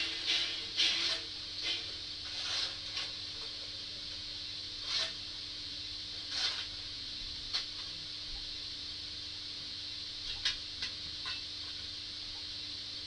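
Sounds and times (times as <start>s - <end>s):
faint hum: 0.0s - 13.0s
steam hiss from small speaker: 4.4s - 7.0s.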